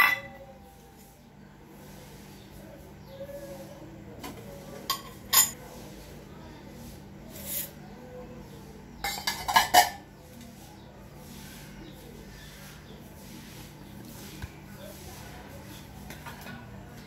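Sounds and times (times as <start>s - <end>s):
steel bowls clinking: 0.0s - 0.4s, 4.9s - 5.6s, 9.0s - 10.0s.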